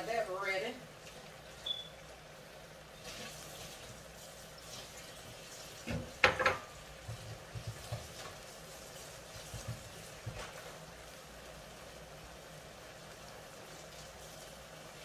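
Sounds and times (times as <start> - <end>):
vegetables and sausage sizzling: 0.0 - 15.0
dishes clattering: 5.9 - 8.2.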